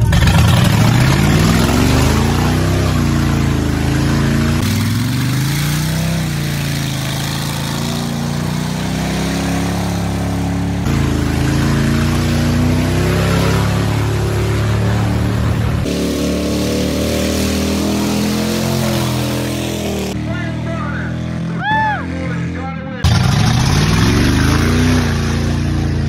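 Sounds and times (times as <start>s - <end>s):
truck engine revving: 0.0s - 26.0s.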